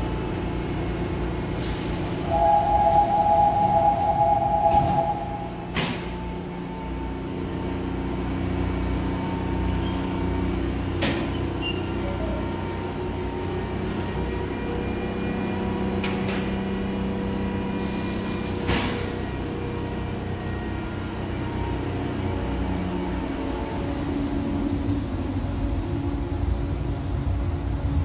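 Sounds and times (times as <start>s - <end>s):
train electrical hum: 0.2s - 9.2s
two-note chime: 2.3s - 5.8s
train doors shutting with a knock: 2.3s - 6.3s, 18.5s - 19.3s.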